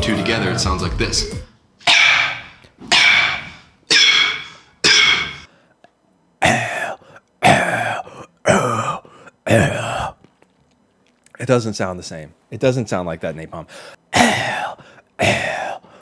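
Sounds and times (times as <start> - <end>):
beatbox cough snare: 1.8 - 5.5.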